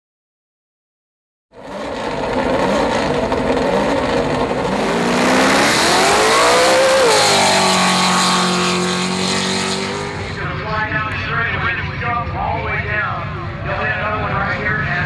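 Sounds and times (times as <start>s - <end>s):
truck engine revving: 1.6s - 10.8s.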